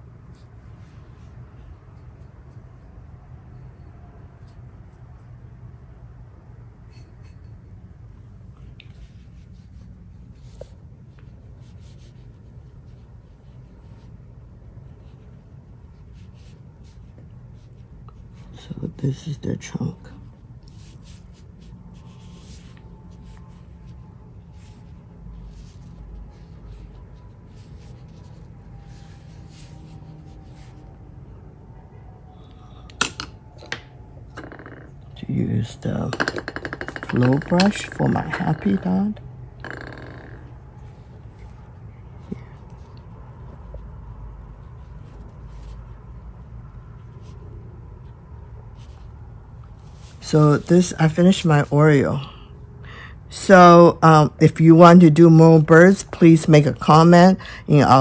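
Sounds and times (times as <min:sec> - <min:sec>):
low steady hum: 0:00.0 - 0:58.0
brush rustling on paper: 0:08.3 - 0:31.0, 0:40.8 - 0:52.1
brush strokes on paper: 0:20.2 - 0:31.0, 0:48.7 - 0:50.9.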